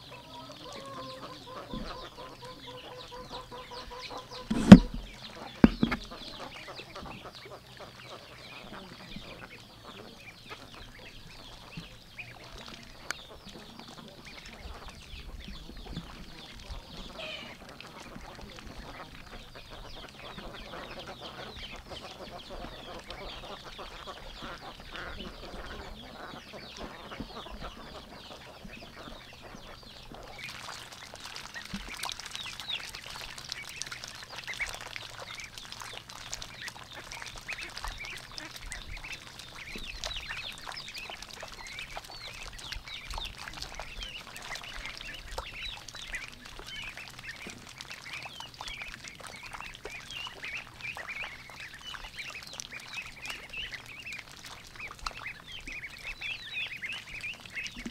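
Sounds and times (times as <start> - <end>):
ducklings peeping: 0.0 - 57.9.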